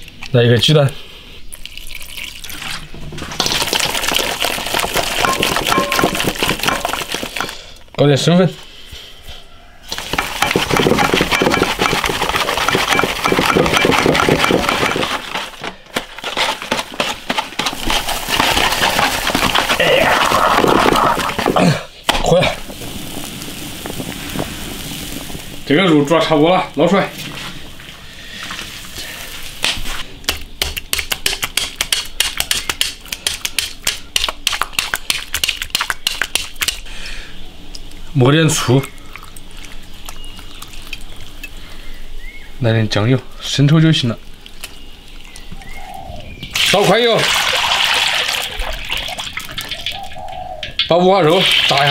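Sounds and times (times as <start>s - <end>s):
hands kneading wet mixture: 9.9s - 21.7s, 25.6s - 36.9s, 37.7s - 41.8s, 42.4s - 51.9s
squelching and slapping strokes: 28.6s - 36.9s, 38.8s - 41.4s.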